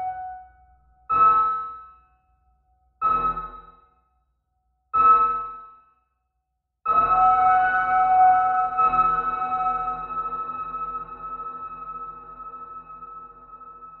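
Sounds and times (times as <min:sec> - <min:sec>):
electronic keyboard chords: 0:06.9 - 0:14.0.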